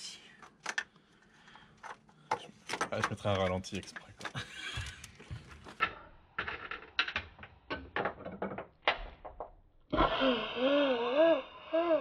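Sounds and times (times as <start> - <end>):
sharp clicks and knocks: 1.8 - 9.6.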